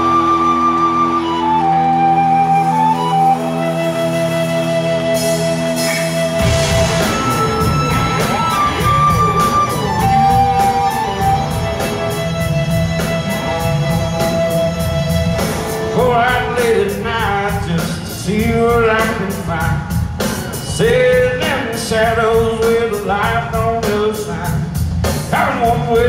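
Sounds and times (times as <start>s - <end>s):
keyboard chord: 0.0s - 17.5s
sliding guitar or synth lines: 0.0s - 23.2s
drums and bass beat: 5.0s - 26.0s
man singing: 15.8s - 26.0s.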